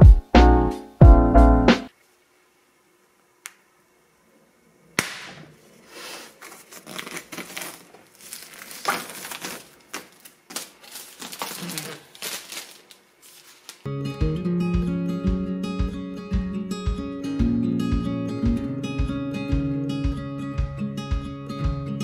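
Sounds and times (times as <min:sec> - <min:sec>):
plastic wrap crinkling: 0:06.0 - 0:13.9.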